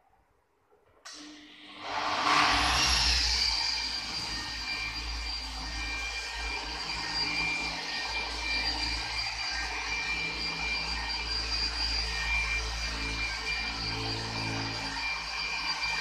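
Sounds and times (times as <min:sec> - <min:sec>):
electric polisher whining: 0:01.1 - 0:16.0.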